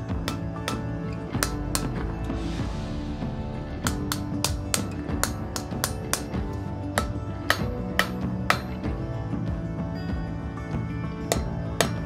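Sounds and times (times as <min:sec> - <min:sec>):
hammer striking iron on anvil: 0:00.0 - 0:02.4, 0:03.8 - 0:09.0, 0:11.3 - 0:12.0
instrumental background music: 0:00.0 - 0:12.0.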